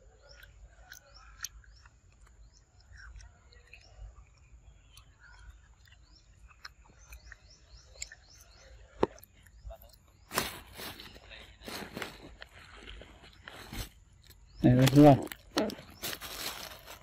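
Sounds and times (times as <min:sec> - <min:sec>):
small birds chirping: 0:00.0 - 0:17.0
rustling: 0:10.3 - 0:14.0, 0:15.7 - 0:17.0.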